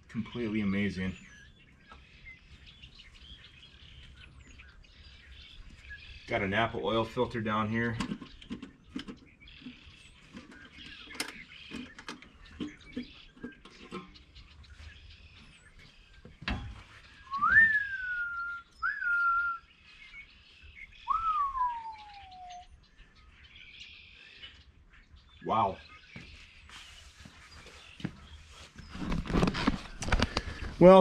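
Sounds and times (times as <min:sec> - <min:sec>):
whistled notes sliding in pitch: 0:17.3 - 0:19.6, 0:21.1 - 0:22.7.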